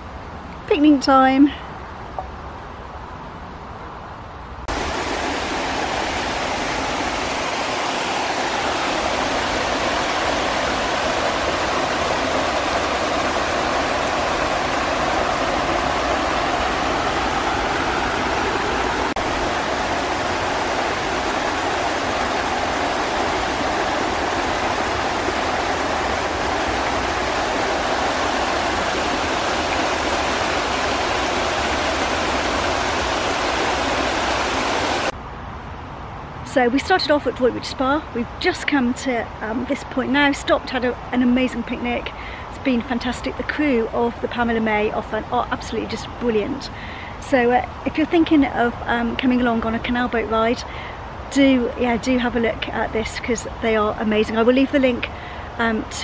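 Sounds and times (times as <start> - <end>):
water rushing over stone ledge: 4.7 - 35.2.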